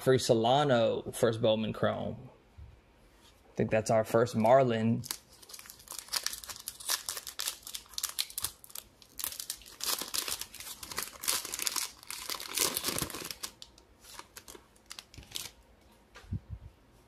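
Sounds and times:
foil wrapper crinkling and tearing: 5.0 - 15.6.

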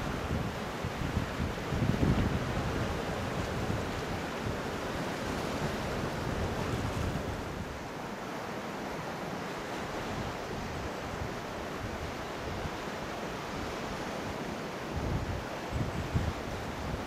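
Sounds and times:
wind buffeting microphone: 0.0 - 7.8, 14.9 - 17.0
sea surf washing on shore: 0.0 - 17.0.

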